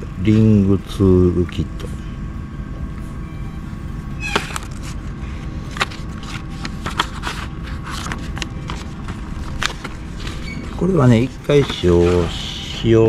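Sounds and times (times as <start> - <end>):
steady low hum: 0.0 - 13.0
paper crackling and rustling: 4.3 - 13.0.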